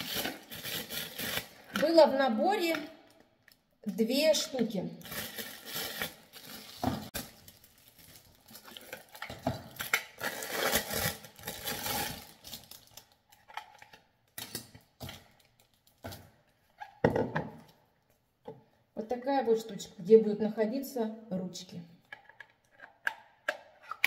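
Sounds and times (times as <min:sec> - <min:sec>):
plastic packaging crinkling: 0:00.0 - 0:02.0, 0:05.0 - 0:13.4.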